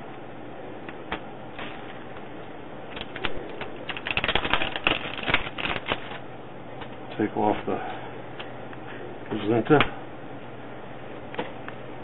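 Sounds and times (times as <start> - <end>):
plastic wrapper crackling: 3.8 - 6.2.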